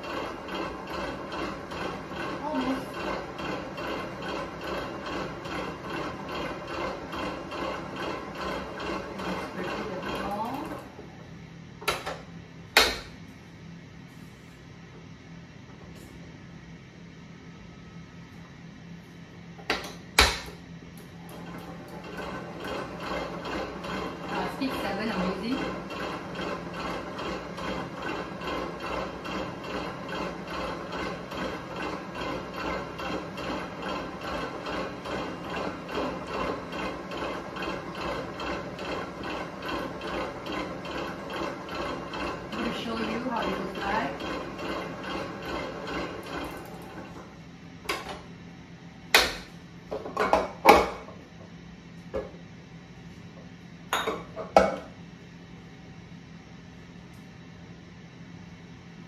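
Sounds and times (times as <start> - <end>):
stand mixer running: 0.0 - 13.1, 21.0 - 48.3.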